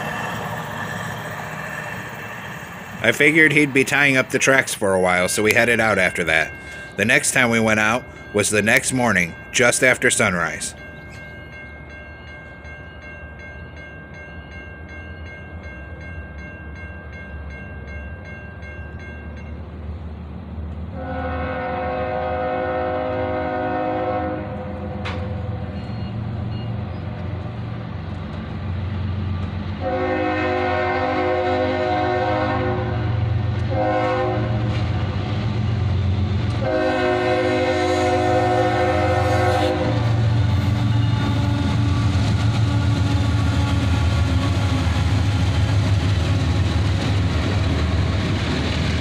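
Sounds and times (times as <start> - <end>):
crossing bell ringing: 0.0 - 20.1, 21.8 - 27.3, 29.8 - 47.7
locomotive engine rumble: 0.0 - 49.0
locomotive horn blasts: 20.9 - 26.1, 29.8 - 34.8, 36.6 - 45.3.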